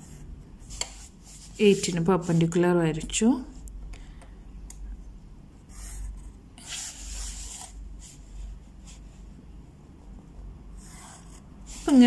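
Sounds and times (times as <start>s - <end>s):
pencil scratching on paper: 5.7s - 8.2s, 10.7s - 12.0s.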